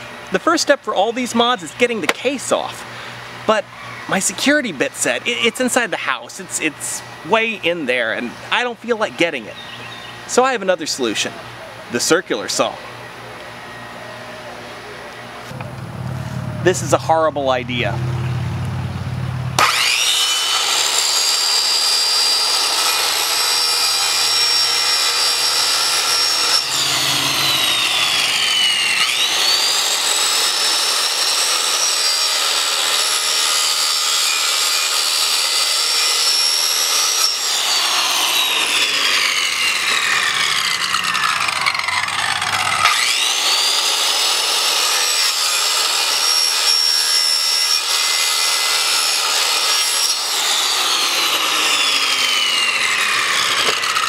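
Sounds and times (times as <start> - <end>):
circular saw cutting: 19.5 - 54.0.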